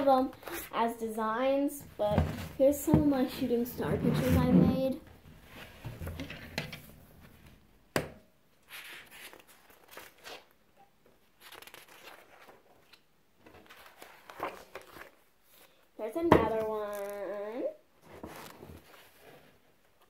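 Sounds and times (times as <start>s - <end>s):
notebook pages rustling: 8.6s - 10.5s, 11.3s - 15.7s, 18.0s - 20.0s.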